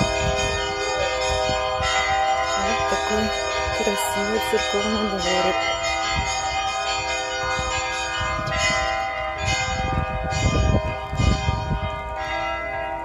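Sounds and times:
church bells ringing: 0.0s - 13.0s.

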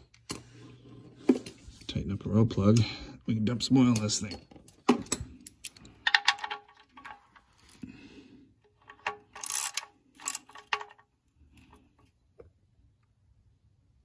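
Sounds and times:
socket ratchet clicking: 9.0s - 10.9s.

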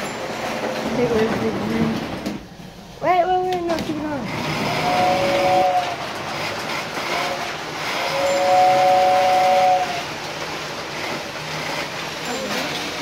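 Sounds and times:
model train rumbling on track: 0.0s - 2.5s, 3.7s - 13.0s
model train horn toots: 4.7s - 6.0s, 7.0s - 10.2s.

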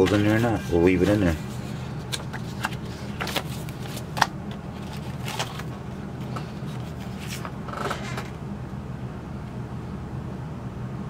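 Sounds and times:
paper pages rustling and flapping: 0.0s - 8.3s
steady low hum: 0.0s - 11.0s.

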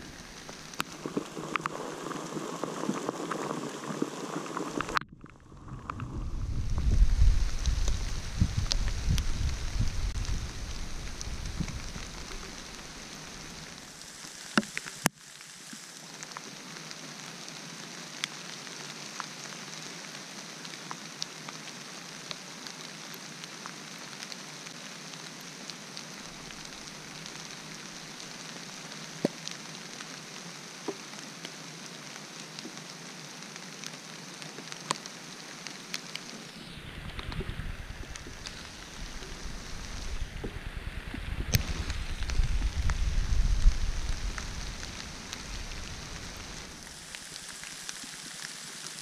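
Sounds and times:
heavy rain hissing: 0.0s - 49.0s
raindrops ticking nearby: 0.0s - 49.0s.

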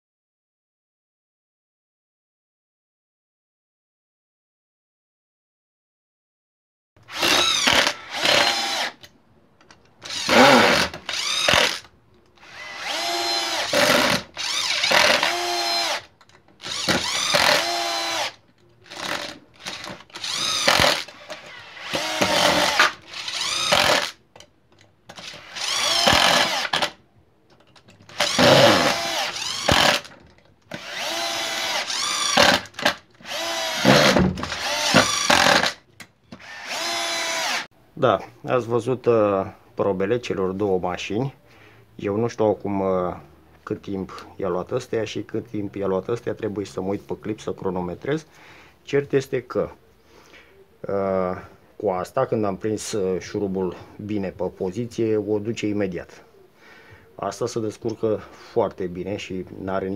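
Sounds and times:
electric screwdriver motor whine: 10.1s - 11.8s, 12.4s - 18.3s, 18.9s - 24.2s, 25.2s - 26.9s, 28.1s - 30.1s, 30.8s - 35.7s, 36.4s - 37.7s.

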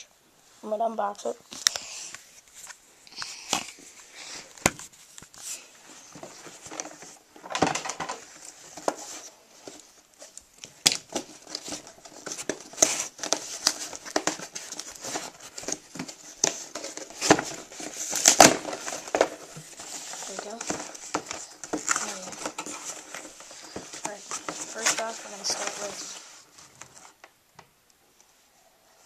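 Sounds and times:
cardboard box crinkling and rustling: 4.6s - 27.3s.

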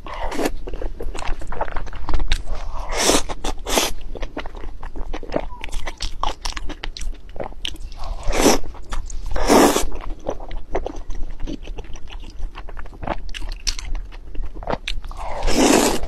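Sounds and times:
chewing with sharp clicks: 3.2s - 8.1s, 9.8s - 16.0s
person slurping noodles: 8.0s - 8.7s, 9.3s - 9.9s, 15.1s - 16.0s.

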